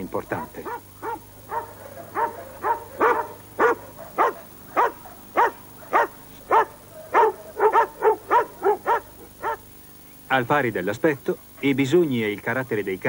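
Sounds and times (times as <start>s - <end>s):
dog barking: 0.3s - 9.7s.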